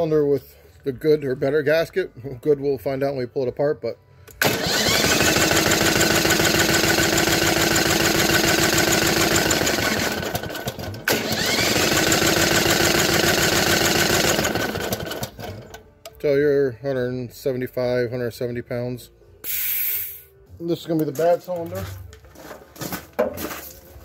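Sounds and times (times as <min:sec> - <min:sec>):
engine cranking on electric starter: 0:04.3 - 0:15.9.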